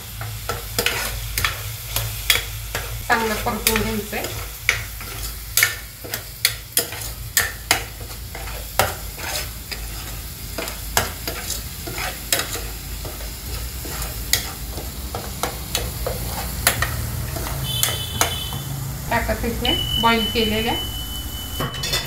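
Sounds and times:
food sizzling in oil: 0.0s - 22.0s
metal spoon scraping a pan: 0.5s - 18.5s, 20.0s - 22.0s.

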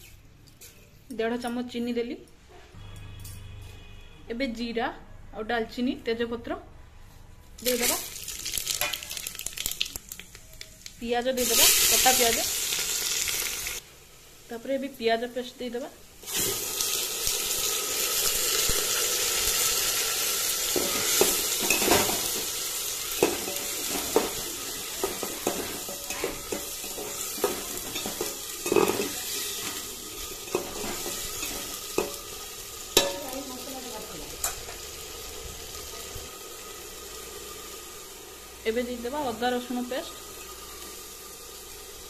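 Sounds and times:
paste sizzling in hot oil: 7.6s - 14.6s, 16.2s - 42.0s.

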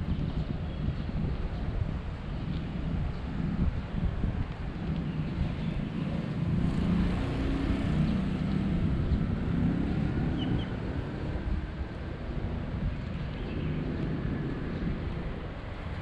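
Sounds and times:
wind on microphone: 0.0s - 16.0s
vehicle engine rumble passing: 5.4s - 16.0s.

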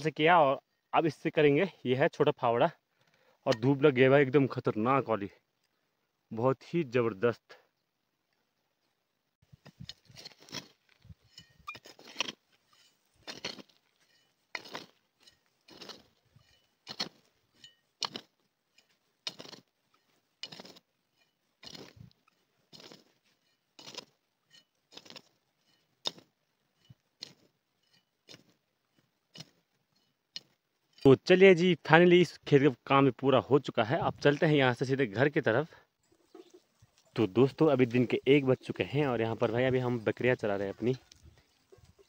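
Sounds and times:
spade chopping into stony soil: 9.6s - 12.5s, 13.2s - 23.2s, 23.8s - 28.6s, 29.3s - 29.6s.

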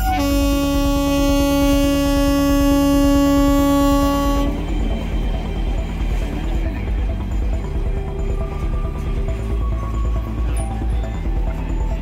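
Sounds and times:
train horn blast: 0.0s - 5.1s.

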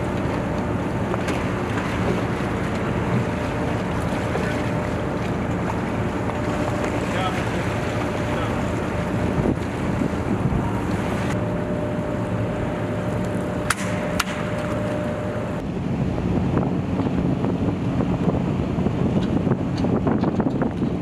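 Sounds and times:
water washing: 0.0s - 15.6s
boat engines running: 0.0s - 21.0s
wind buffeting microphone: 0.8s - 21.0s.

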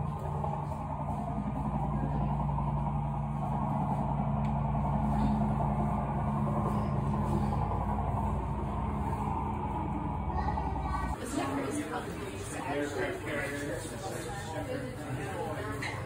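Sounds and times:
background rumble: 0.0s - 11.2s
low tones: 0.0s - 11.9s
low mechanical hum: 0.0s - 16.0s.

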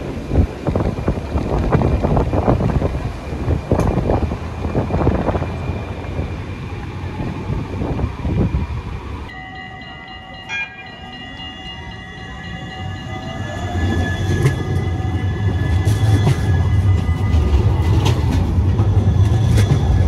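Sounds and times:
wind on microphone: 0.0s - 9.3s
tram electric drive whine: 0.0s - 20.0s
wheels rumbling on rail: 0.0s - 20.0s.

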